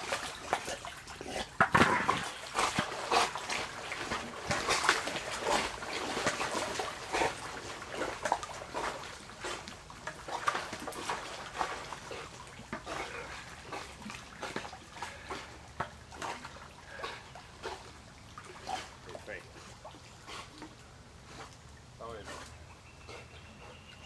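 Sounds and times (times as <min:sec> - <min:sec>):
dog splashing in water: 0:00.0 - 0:20.8.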